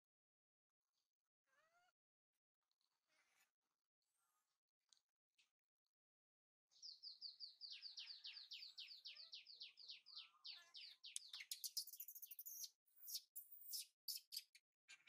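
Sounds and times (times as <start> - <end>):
baby monkey squealing: 11.7 - 14.4.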